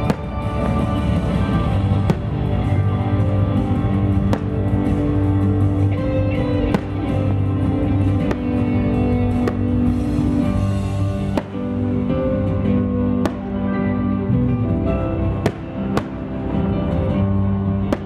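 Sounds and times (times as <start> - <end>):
firework shells bursting: 0.0 - 5.4, 6.6 - 12.1, 13.2 - 13.7, 15.4 - 16.6
guitar music: 0.0 - 18.0.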